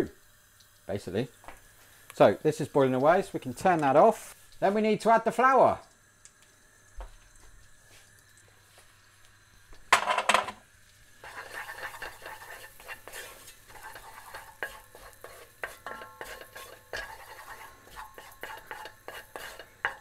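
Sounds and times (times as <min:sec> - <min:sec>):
wooden spoon stirring in a saucepan: 0:11.0 - 0:20.0.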